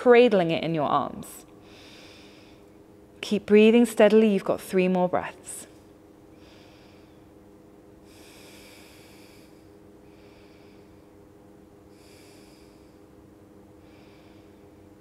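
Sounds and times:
faint steady hum: 0:00.0 - 0:15.0
slow steady breathing: 0:01.6 - 0:02.8, 0:06.3 - 0:15.0.

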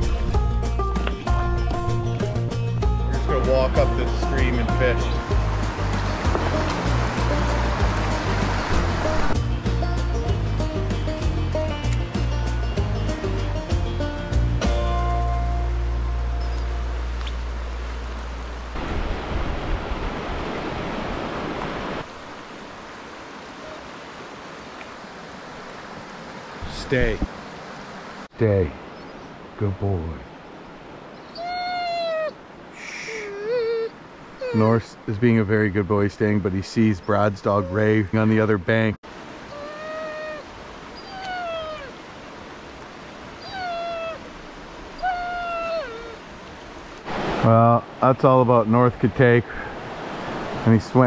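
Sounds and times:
river rapids rushing: 0:02.8 - 0:13.6, 0:15.5 - 0:28.3, 0:39.1 - 0:51.0
dog whining: 0:31.3 - 0:32.4, 0:33.2 - 0:34.8, 0:39.5 - 0:42.0, 0:43.4 - 0:44.3, 0:44.9 - 0:46.2.

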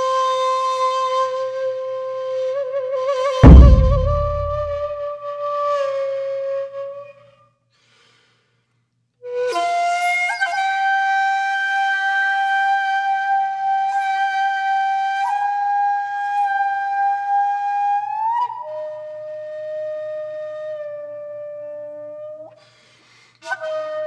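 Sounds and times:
flute-like wind instrument melody: 0:00.0 - 0:05.0, 0:09.3 - 0:22.5, 0:23.4 - 0:24.0.

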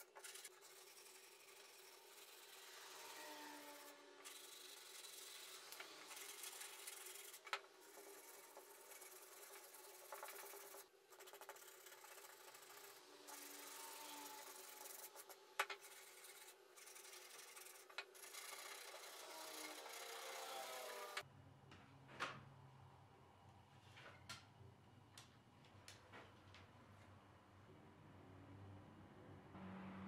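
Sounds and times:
sandpaper rasping on wood: 0:00.0 - 0:21.2.

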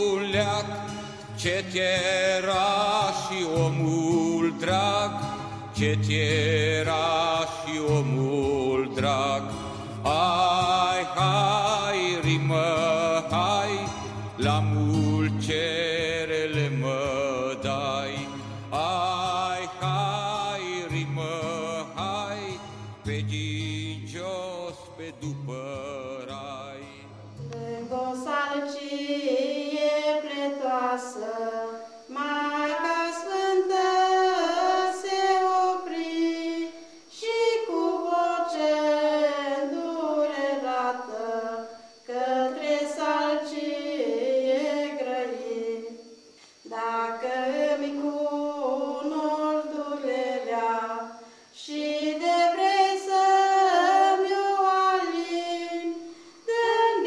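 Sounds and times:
high voices singing unaccompanied: 0:00.0 - 0:57.0.

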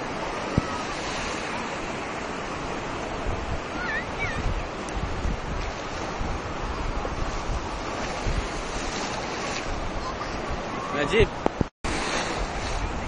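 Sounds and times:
sea waves breaking: 0:00.0 - 0:13.0
wind rumbling on microphone: 0:00.0 - 0:13.0.

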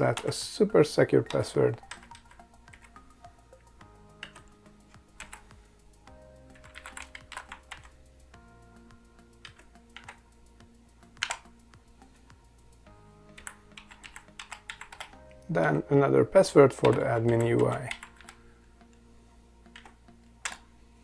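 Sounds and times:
keyboard keys tapping: 0:01.2 - 0:08.1, 0:09.4 - 0:10.3, 0:11.2 - 0:11.5, 0:13.3 - 0:15.9, 0:16.7 - 0:19.0, 0:19.7 - 0:20.7.

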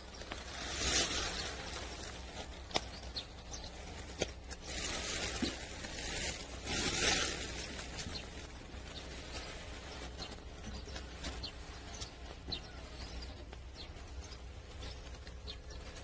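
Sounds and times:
dry leaves rustling and crackling: 0:00.0 - 0:16.0
twigs snapping: 0:00.2 - 0:08.6.

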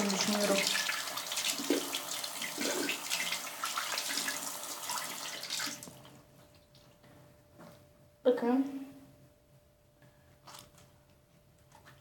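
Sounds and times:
hands washing under water: 0:00.0 - 0:06.0
water running from a sink tap: 0:00.0 - 0:06.0.

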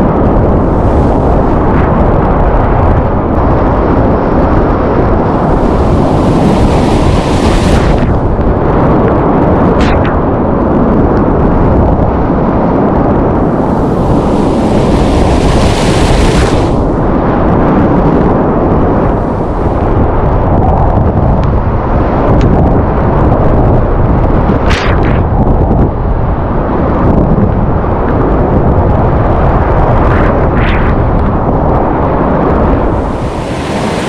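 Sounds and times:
hissing rush of breaking wave: 0:05.3 - 0:08.4, 0:13.4 - 0:17.1, 0:32.8 - 0:34.0.

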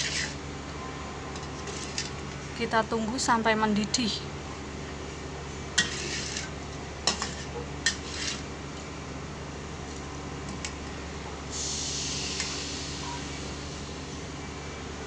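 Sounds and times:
metal ladle scraping a wok: 0:00.0 - 0:00.4, 0:01.5 - 0:02.2, 0:05.8 - 0:08.5
low background hum: 0:00.0 - 0:15.0.

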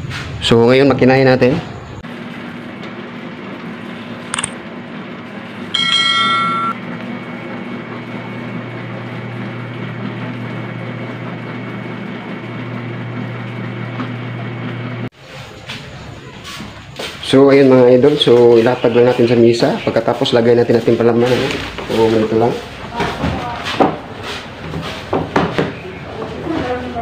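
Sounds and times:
dough sheeter humming: 0:02.0 - 0:27.0
high-pitched ringing tone: 0:05.7 - 0:06.8.

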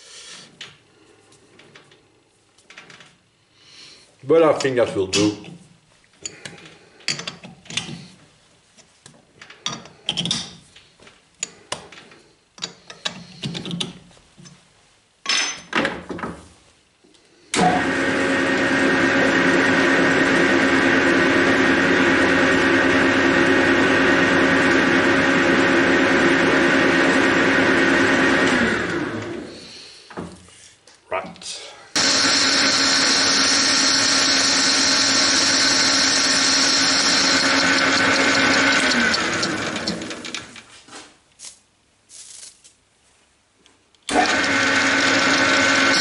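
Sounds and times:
metal lathe running: 0:32.0 - 0:40.5, 0:44.1 - 0:46.0.

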